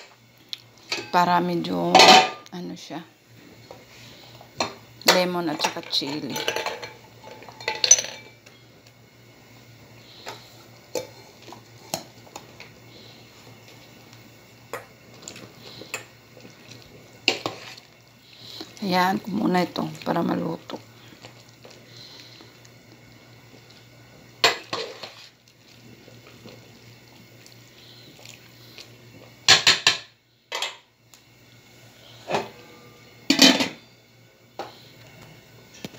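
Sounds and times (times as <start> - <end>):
low steady hum: 0.0 - 35.9
metal pot and lid clanking: 33.3 - 33.8.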